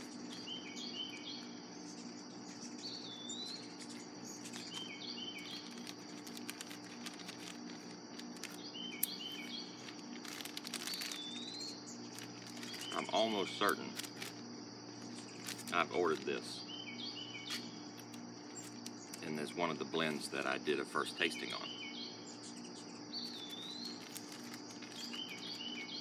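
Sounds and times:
air conditioner hum: 0.0s - 26.0s
insect trill: 0.0s - 26.0s
plastic pouch crinkling: 4.4s - 16.4s, 17.5s - 19.3s, 23.2s - 25.9s
songbird singing short phrases: 10.9s - 14.0s, 19.0s - 24.0s.

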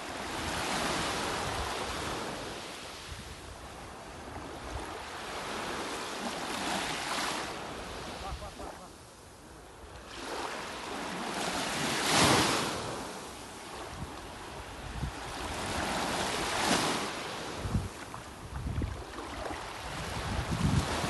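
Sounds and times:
small waves washing on shore: 0.0s - 21.0s
wind buffeting microphone: 13.9s - 15.9s, 17.5s - 21.0s.

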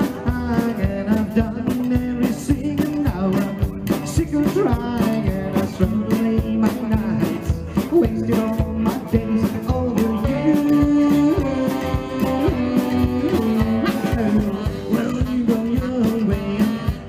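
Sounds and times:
rock and roll band playing: 0.0s - 17.0s.

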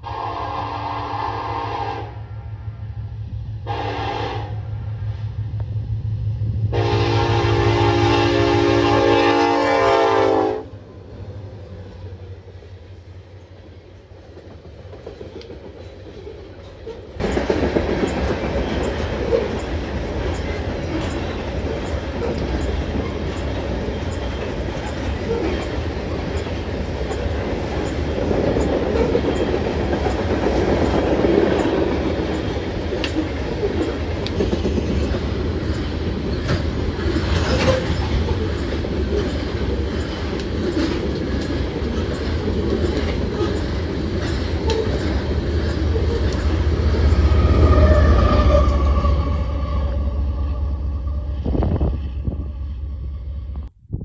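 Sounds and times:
train wheels rumbling on rail: 0.0s - 54.0s
clickety-clack over rail joints: 13.4s - 47.3s.

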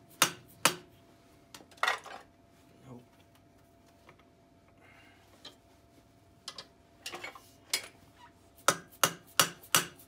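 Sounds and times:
tools clicking and knocking: 6.4s - 8.0s.

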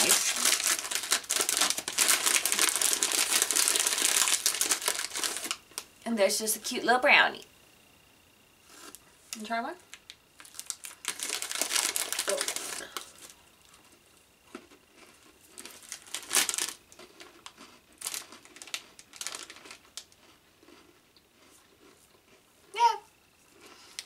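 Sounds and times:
plastic snack packet crinkling: 0.0s - 5.9s, 9.9s - 13.4s, 14.5s - 20.9s.

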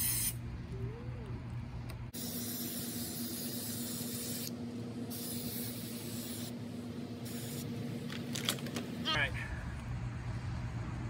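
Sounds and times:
spray paint can hissing: 0.0s - 0.4s, 2.2s - 6.6s, 7.2s - 7.7s.

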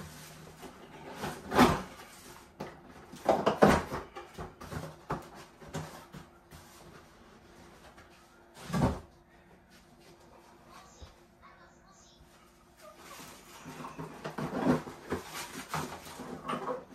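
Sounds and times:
cardboard rustling and scraping: 0.0s - 9.1s, 12.8s - 16.9s.

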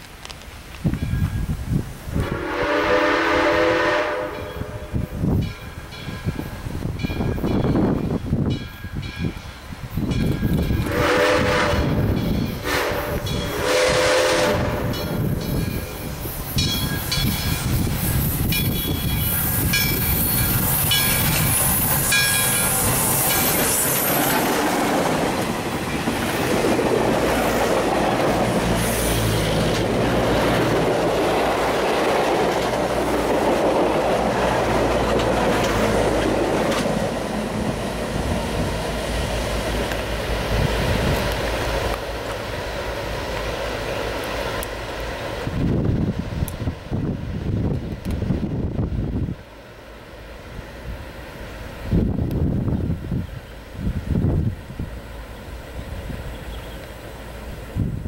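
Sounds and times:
steam whistle: 2.1s - 5.0s, 10.8s - 15.0s
locomotive bell ringing: 4.3s - 10.9s, 11.8s - 13.7s, 14.8s - 17.8s, 18.4s - 24.5s
train wheels clattering on rail: 4.3s - 48.9s.

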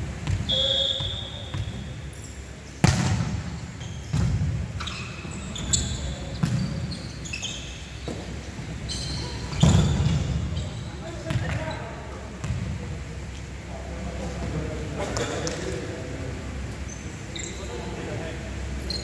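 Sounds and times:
volleyball hits echoing: 2.8s - 3.5s
short high squeaks: 4.8s - 8.0s.

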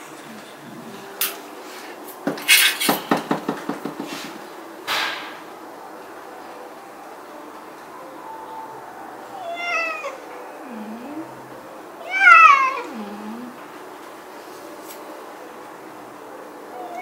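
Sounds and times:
knocks and rattles: 2.2s - 5.5s.

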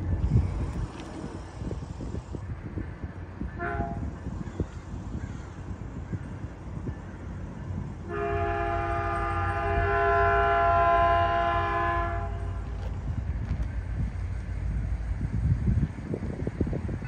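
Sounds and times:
low rumble: 0.0s - 17.0s
locomotive air horn blast: 3.5s - 4.1s, 8.0s - 12.7s.

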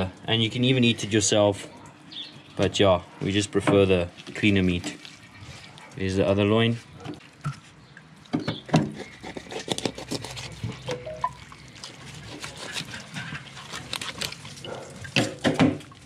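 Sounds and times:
knife cutting raw fish: 8.8s - 10.9s, 11.8s - 14.9s.

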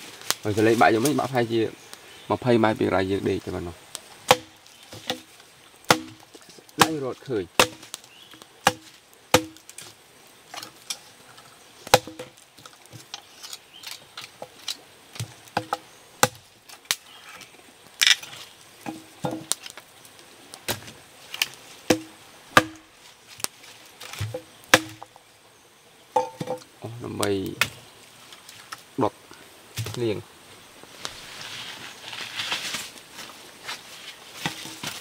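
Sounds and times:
knife chopping wood: 4.2s - 5.3s, 5.9s - 8.0s, 8.6s - 9.8s, 11.9s - 12.4s, 15.2s - 16.4s, 21.9s - 22.9s, 24.0s - 25.1s.

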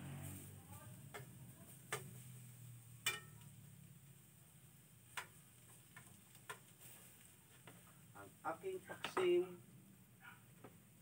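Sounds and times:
utensil clinking against frying pan: 3.0s - 3.4s.

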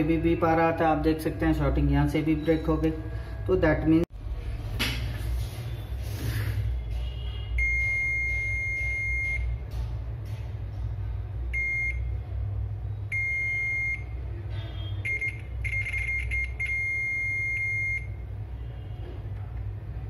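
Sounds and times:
multimeter continuity beeps: 7.6s - 9.6s, 11.6s - 12.1s, 13.1s - 14.2s, 15.0s - 18.2s.

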